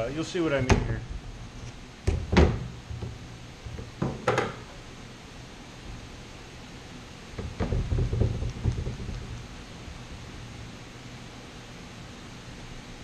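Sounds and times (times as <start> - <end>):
low steady hum: 0.0 - 13.0
knocks and clicks: 7.4 - 9.4.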